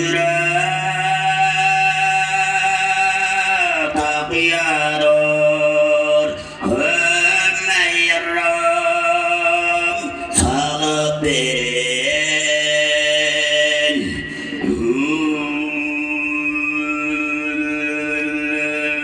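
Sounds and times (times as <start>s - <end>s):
singer breathing: 6.3s - 6.7s, 14.0s - 14.7s
man throat singing drone: 9.1s - 19.0s.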